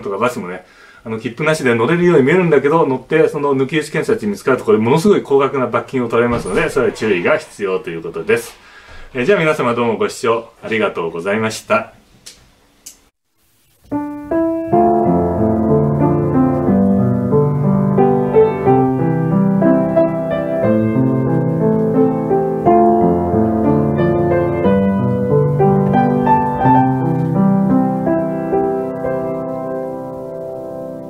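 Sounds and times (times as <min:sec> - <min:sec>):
piano music: 0:13.9 - 0:31.0.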